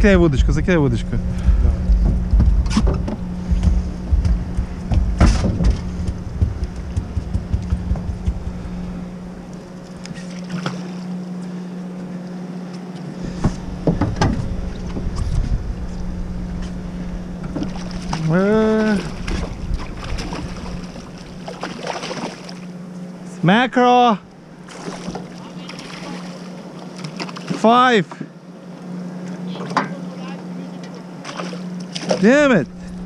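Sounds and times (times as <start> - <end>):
wind rumbling on microphone: 0.0 - 10.2, 13.2 - 21.6
boat motor idling: 0.0 - 33.0
sharp knocks: 1.3 - 8.9, 13.3 - 15.6.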